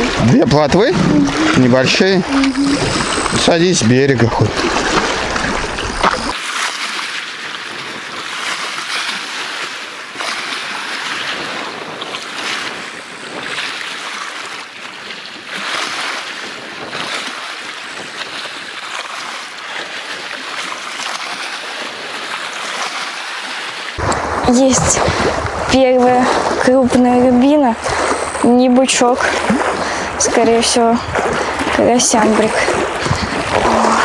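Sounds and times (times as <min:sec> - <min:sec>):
wind rushing: 0:00.0 - 0:06.3
waves splashing and lapping: 0:00.0 - 0:34.0.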